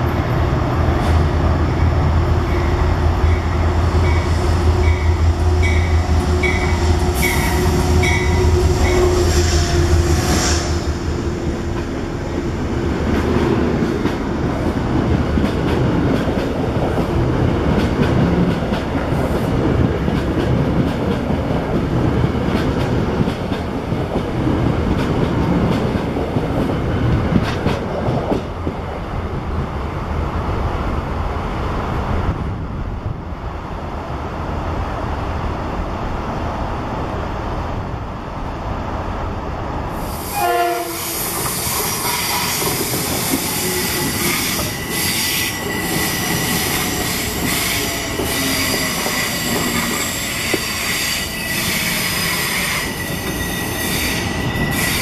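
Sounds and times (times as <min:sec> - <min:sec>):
locomotive whine: 0:00.0 - 0:15.4
train wheels clacking over rail joints: 0:41.2 - 0:55.0.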